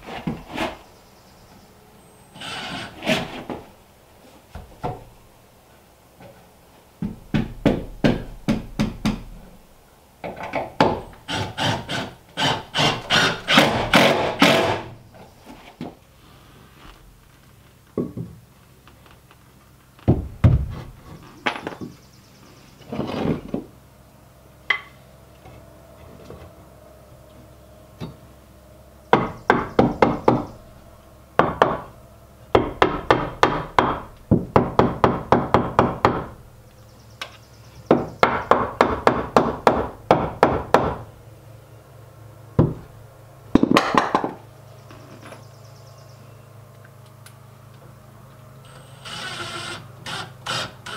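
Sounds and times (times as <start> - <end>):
hammer striking wood: 7.0 - 9.3, 29.1 - 30.5, 31.4 - 31.9, 32.5 - 36.3, 37.9 - 41.0.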